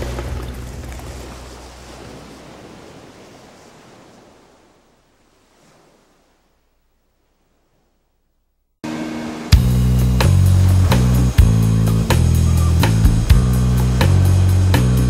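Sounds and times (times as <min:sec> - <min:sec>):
even wash of noise: 0:00.0 - 0:06.6, 0:08.8 - 0:15.0
background music: 0:08.9 - 0:15.0.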